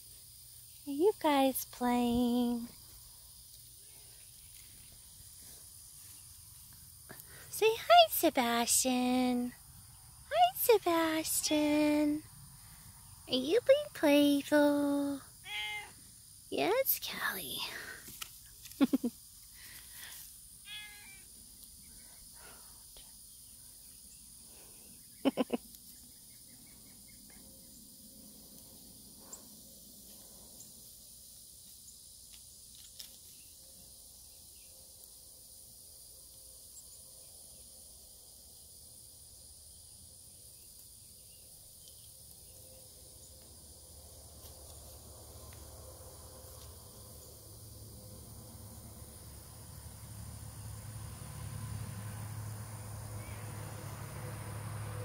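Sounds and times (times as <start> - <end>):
kittens meowing: 15.4 - 15.9, 20.7 - 21.2.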